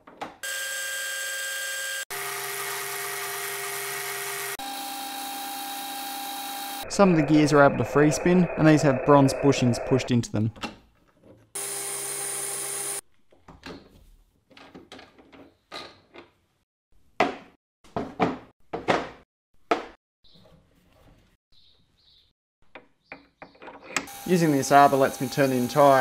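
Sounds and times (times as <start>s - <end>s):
lathe cutting metal: 2.1s - 10.1s, 24.1s - 26.0s.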